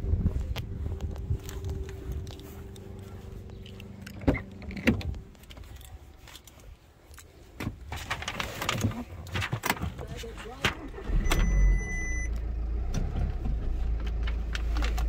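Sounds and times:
rustling: 0.3s - 10.9s.

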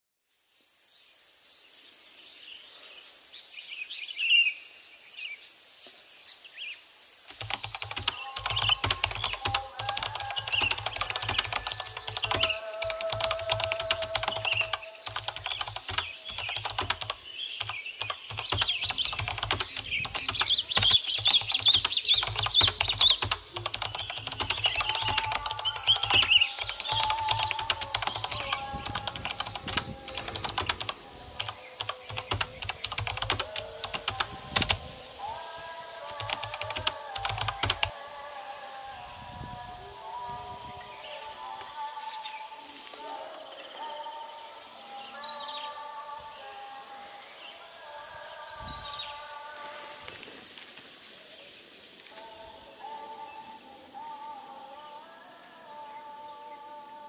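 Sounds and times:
birds chirping: 6.3s - 50.6s
keyboard typing clicks: 7.3s - 34.8s, 36.1s - 37.9s.

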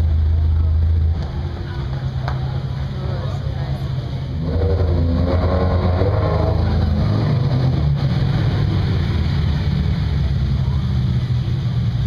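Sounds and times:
sports car engines revving: 0.0s - 12.0s.

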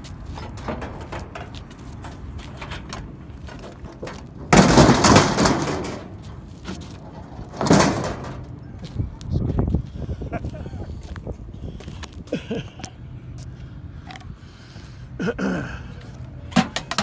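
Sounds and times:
metal grill crashing into truck bed: 3.8s - 6.2s, 7.3s - 8.5s.

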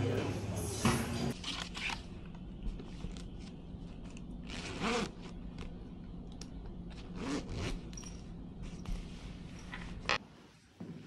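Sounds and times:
bag zipper pulled: 7.0s - 7.9s.

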